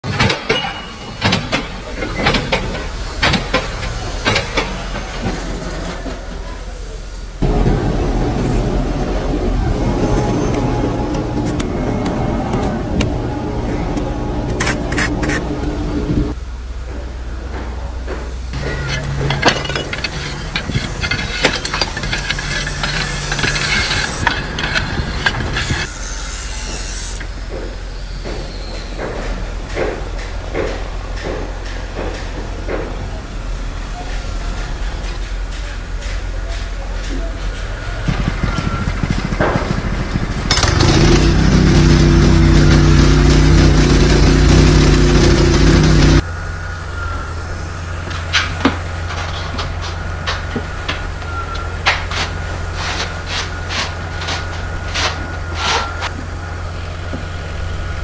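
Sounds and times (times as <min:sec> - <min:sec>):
power press metallic clanks: 0:00.1 - 0:04.8, 0:18.6 - 0:25.9
roof tiles clattering and scraping: 0:18.6 - 0:25.9, 0:48.0 - 0:56.2
hiss: 0:25.1 - 0:29.7
machine humming: 0:38.0 - 0:48.3.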